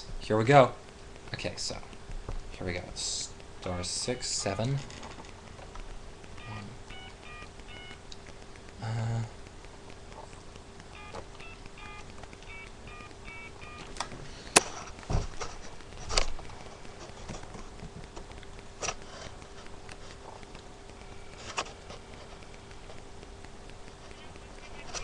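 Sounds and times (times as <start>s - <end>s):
sharp clicks and knocks: 0.0s - 8.8s, 9.4s - 25.0s
telephone keypad beeps: 6.4s - 8.0s, 10.9s - 14.0s.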